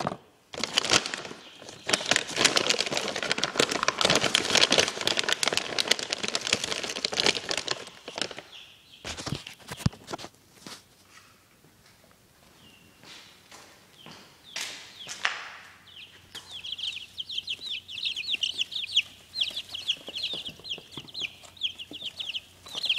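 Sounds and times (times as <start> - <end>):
packaging crinkling and rustling: 0.0 - 10.2.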